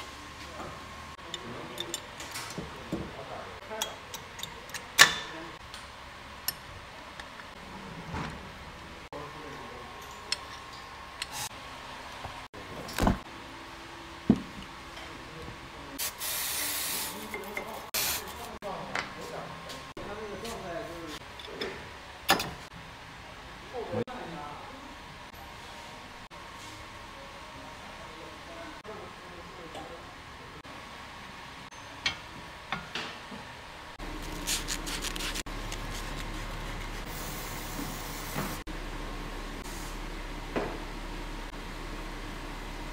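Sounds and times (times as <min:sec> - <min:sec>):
workshop hum: 0:00.0 - 0:42.9.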